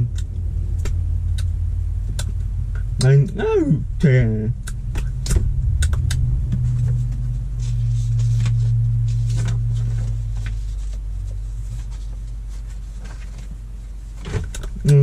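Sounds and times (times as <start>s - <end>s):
car cabin hum: 0.0s - 15.0s.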